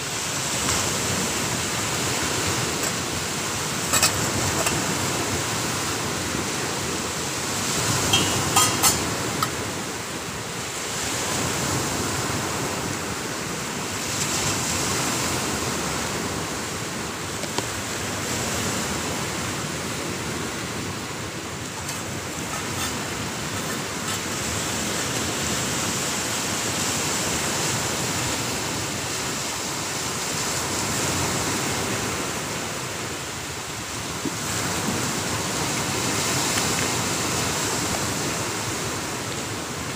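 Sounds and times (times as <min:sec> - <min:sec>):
ocean surf breaking: 0:00.0 - 0:39.9
light metallic clinks: 0:08.1 - 0:09.6.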